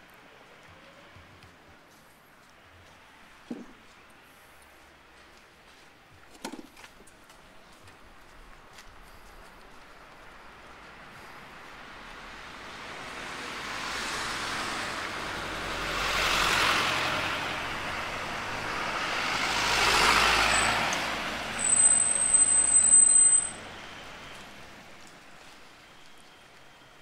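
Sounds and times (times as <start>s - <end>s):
road vehicles passing: 0.0s - 27.0s
shrill high-pitched squeal: 21.5s - 23.6s.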